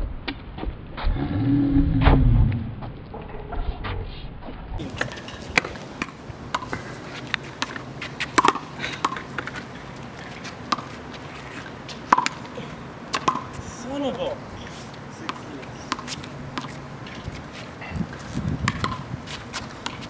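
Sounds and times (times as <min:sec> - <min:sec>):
shoes scuffing on pavement: 0:04.8 - 0:13.7, 0:14.5 - 0:20.0
handball smacking off concrete and wall: 0:08.4 - 0:09.6, 0:12.1 - 0:12.4, 0:18.6 - 0:19.0.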